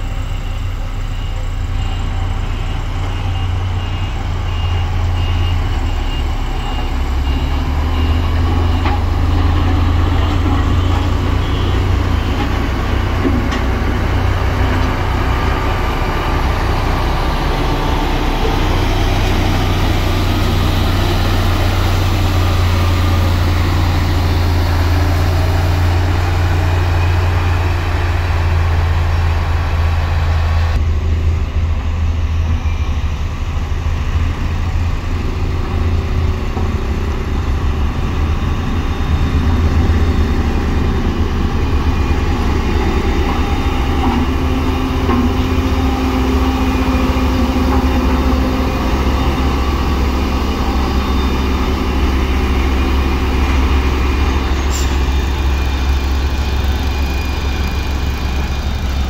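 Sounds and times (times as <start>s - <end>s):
heavy diesel engines running: 0.0s - 59.0s.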